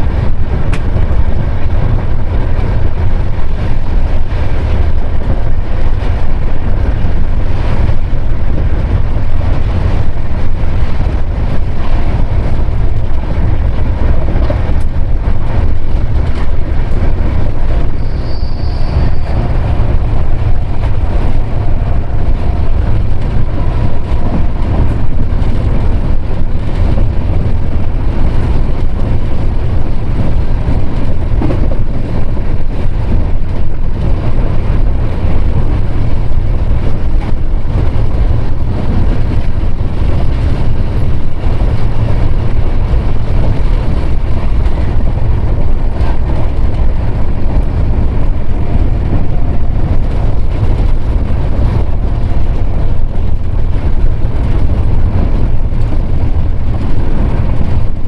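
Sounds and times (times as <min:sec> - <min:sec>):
passenger train rumbling: 0:00.0 - 0:58.0.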